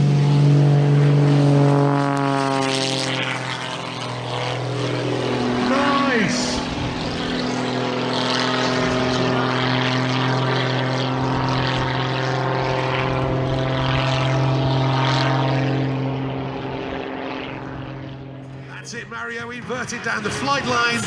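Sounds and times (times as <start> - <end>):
model aircraft engine drone: 0.0 - 21.0.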